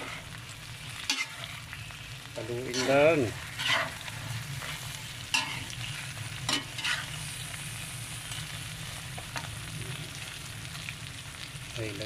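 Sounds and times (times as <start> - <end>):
shrimp sizzling in a pan: 0.0 - 12.0
metal spatula scraping pan: 1.0 - 1.7, 2.7 - 7.2.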